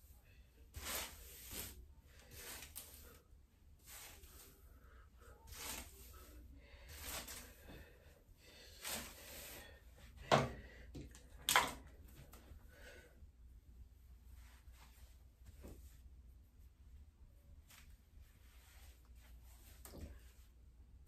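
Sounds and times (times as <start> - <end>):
hairbrush swishing through hair: 0.6 - 3.2, 3.8 - 4.7, 5.3 - 7.6, 8.7 - 9.6.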